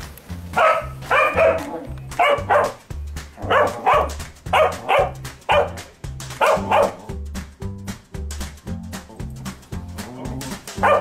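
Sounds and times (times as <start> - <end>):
background music with bass beat: 0.0 - 11.0
dog barking: 0.6 - 2.8, 3.4 - 7.1, 10.8 - 11.0.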